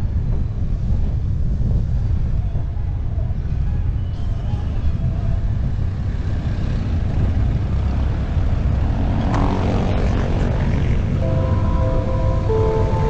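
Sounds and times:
road traffic: 0.0s - 13.0s
wind buffeting microphone: 0.0s - 13.0s
passing motor vehicle engine: 5.7s - 13.0s.

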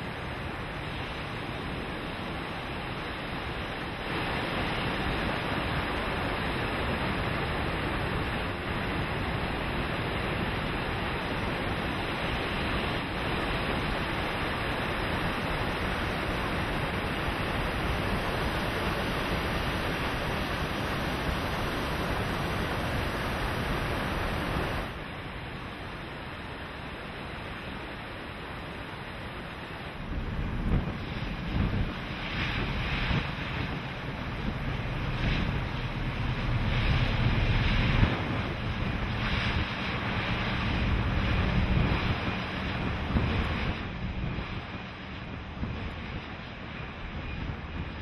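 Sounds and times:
choppy sea: 0.0s - 48.0s
wind rushing: 30.0s - 44.4s.

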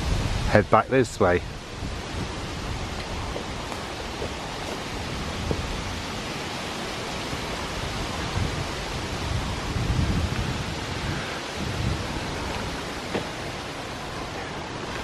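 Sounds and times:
rushing outdoor noise: 0.0s - 15.0s
faint footsteps on dirt path: 2.2s - 6.4s, 11.9s - 15.0s.

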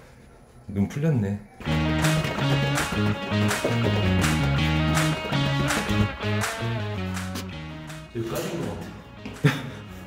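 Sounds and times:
upbeat strummed guitar music: 1.6s - 8.2s.

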